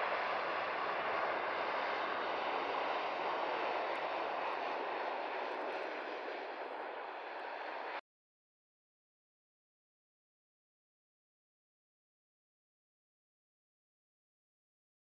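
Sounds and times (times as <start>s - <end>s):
turboprop airliner landing: 0.0s - 8.0s.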